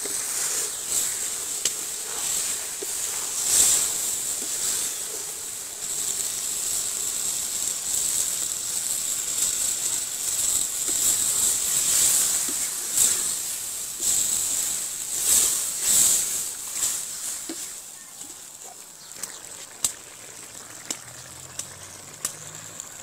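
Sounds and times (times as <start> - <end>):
spatula scraping a wok: 0.0 - 18.0
curry sizzling in a wok: 0.0 - 23.0.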